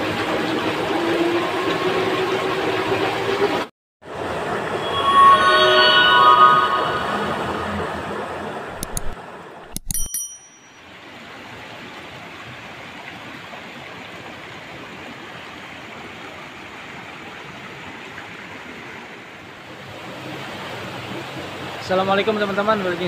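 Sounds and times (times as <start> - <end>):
clicks with ringing bell tones: 8.8 - 10.8.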